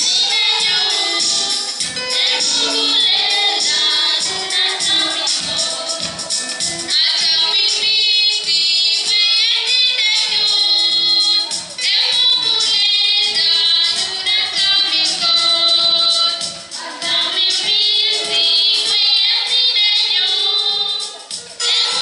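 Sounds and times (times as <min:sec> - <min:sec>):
young female voices singing hymn: 0:00.0 - 0:06.2.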